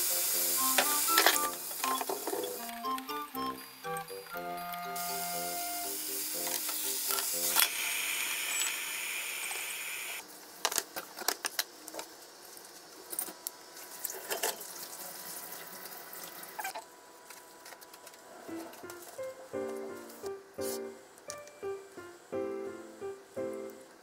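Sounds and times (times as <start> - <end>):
lotus root sizzling in a frying pan: 0.0 - 10.2.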